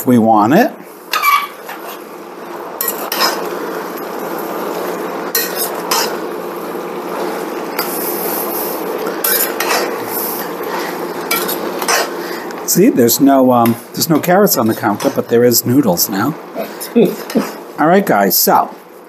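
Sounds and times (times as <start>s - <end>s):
frying hiss: 0.0s - 19.0s
utensil scraping and clinking in pan: 2.8s - 3.6s, 5.3s - 6.2s, 9.0s - 12.5s.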